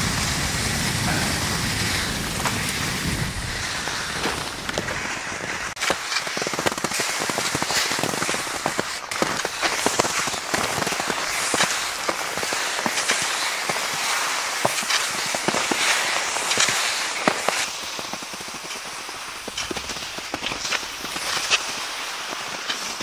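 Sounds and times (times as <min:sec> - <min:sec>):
wind rumble on microphone: 0:00.0 - 0:05.8
skis crunching over snow: 0:00.0 - 0:23.0.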